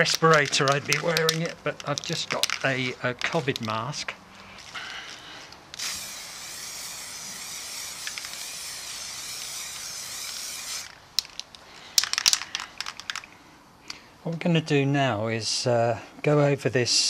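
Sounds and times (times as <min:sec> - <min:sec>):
aerosol spray can hissing: 0:05.8 - 0:11.0.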